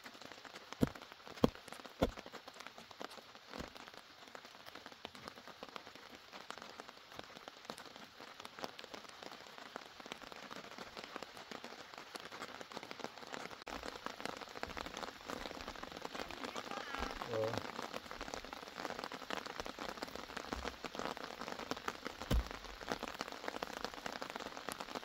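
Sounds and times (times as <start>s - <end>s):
rain pattering on soil and leaves: 0.0s - 25.0s
low muffled thumps: 22.2s - 23.0s.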